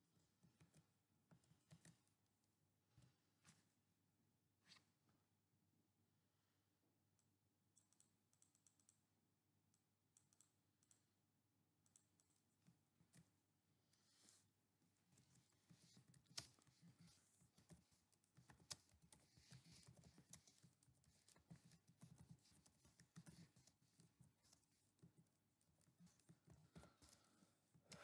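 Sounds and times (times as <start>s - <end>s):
computer keyboard typing: 7.8s - 9.0s, 15.1s - 28.0s.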